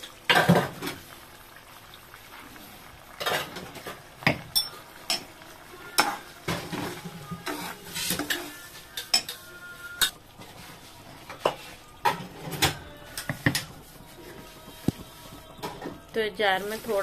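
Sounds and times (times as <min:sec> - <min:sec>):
chicken frying: 0:00.0 - 0:17.0
spatula scraping a pot: 0:06.0 - 0:12.6.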